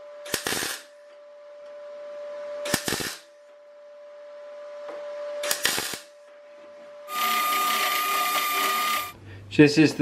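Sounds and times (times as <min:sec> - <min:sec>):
welding arc crackle: 0:00.3 - 0:00.9, 0:02.7 - 0:03.2, 0:05.5 - 0:06.1, 0:07.1 - 0:09.2.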